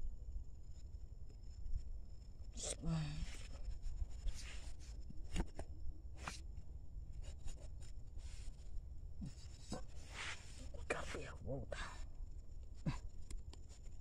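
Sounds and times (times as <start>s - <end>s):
scratching and rustling handling: 3.1s - 11.5s.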